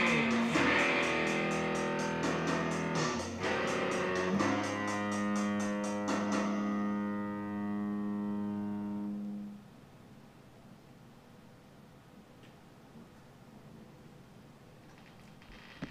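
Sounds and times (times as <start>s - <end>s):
ticking beat: 0.0s - 7.1s
electric bass guitar: 0.0s - 9.5s.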